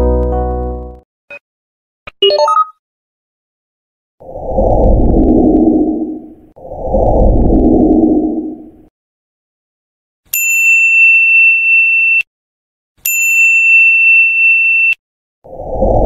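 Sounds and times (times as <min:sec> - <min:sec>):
low whoosh: 0:04.2 - 0:08.9.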